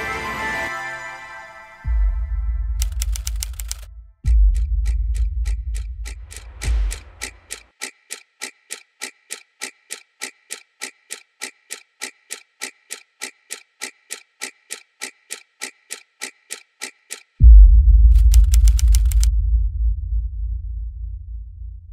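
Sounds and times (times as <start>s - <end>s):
clock ticking: 2.8s - 17.4s, 18.2s - 19.3s
deep low rumble: 17.4s - 18.4s, 19.0s - 21.9s.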